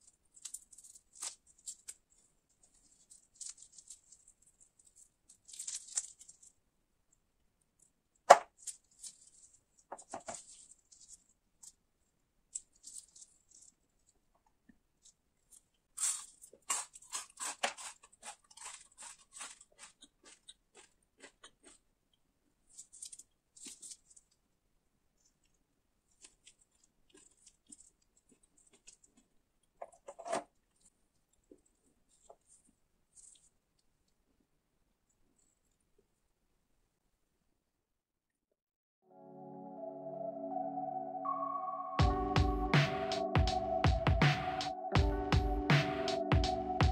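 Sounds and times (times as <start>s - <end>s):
cereal bar crackling and crunching: 0.0s - 6.6s, 7.8s - 11.8s, 12.5s - 14.2s, 15.0s - 21.9s, 22.7s - 24.4s, 25.3s - 29.4s.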